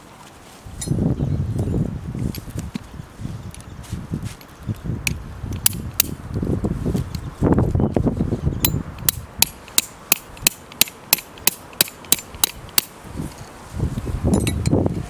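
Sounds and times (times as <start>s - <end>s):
sharp evenly spaced knocks: 8.6s - 13.0s.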